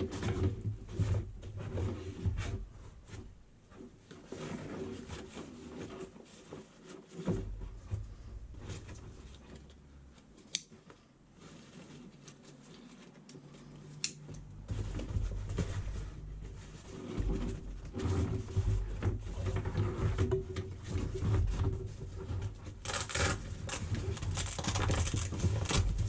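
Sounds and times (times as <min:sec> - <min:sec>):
fabric and strap rustling: 0:00.6 - 0:20.0.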